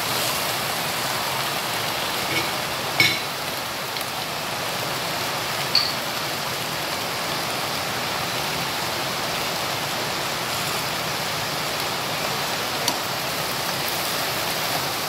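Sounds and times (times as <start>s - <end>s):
leaves sizzling in hot pan: 0.0s - 15.0s.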